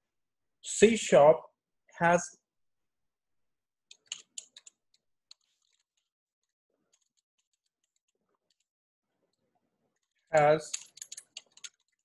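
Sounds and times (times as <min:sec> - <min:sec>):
keyboard keys clicking: 0:03.9 - 0:06.0, 0:10.4 - 0:12.0.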